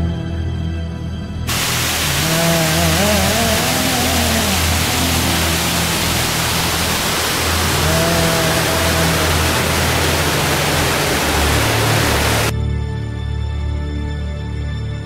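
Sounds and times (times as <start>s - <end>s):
music: 0.0s - 15.0s
waterfall and creek rushing: 1.5s - 12.5s.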